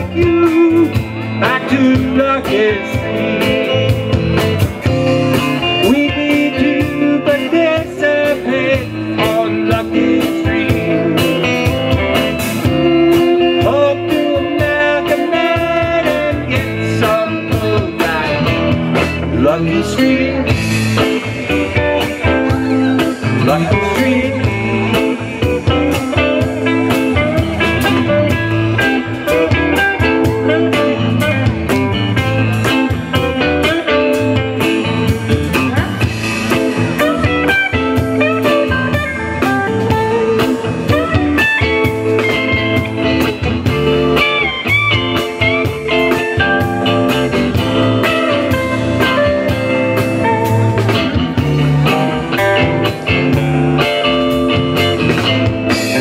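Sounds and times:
bass guitar: 0.0 - 56.0
electric guitar lead: 0.0 - 56.0
steady drum beat: 0.0 - 56.0.

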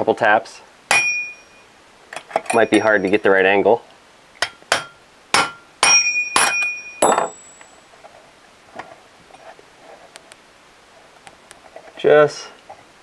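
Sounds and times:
hammer striking metal wrench: 0.9 - 1.6, 2.2 - 3.2, 4.4 - 7.7.

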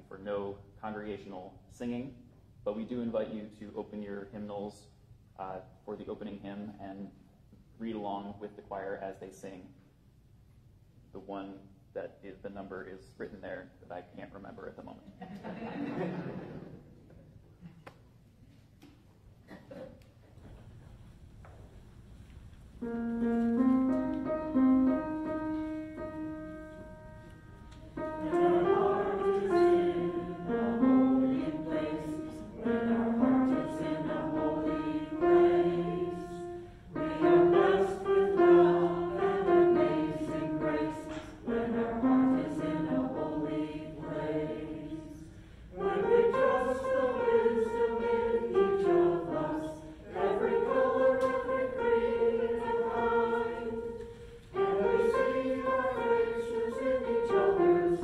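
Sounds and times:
choir singing a hymn: 22.8 - 58.0
held instrumental chords: 22.8 - 58.0.

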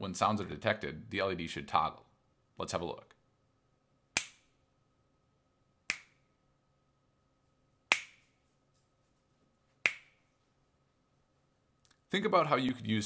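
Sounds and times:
sharp hand claps: 7.9 - 8.2.

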